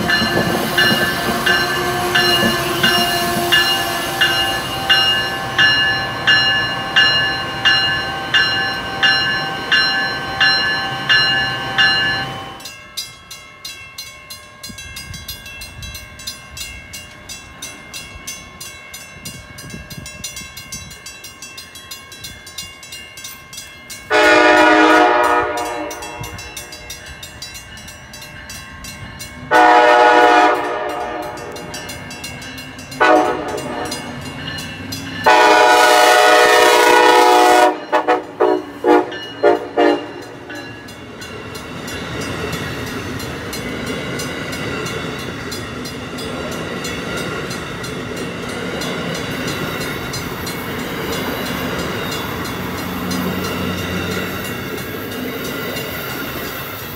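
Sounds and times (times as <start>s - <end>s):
train wheels clacking on rails: 0.0s - 56.9s
locomotive horn: 0.8s - 5.6s, 24.1s - 26.4s, 29.5s - 31.6s, 33.0s - 34.0s, 35.2s - 40.2s.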